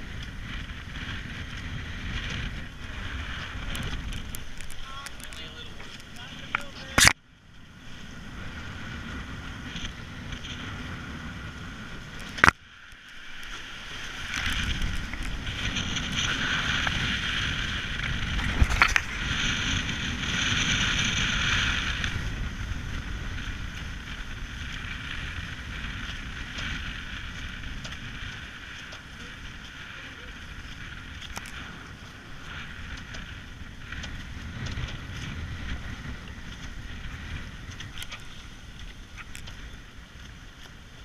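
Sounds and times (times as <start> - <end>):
water rushing past hulls: 0.0 - 41.0
wind buffeting microphone: 0.0 - 41.0
small click of boat fittings: 3.7 - 7.2.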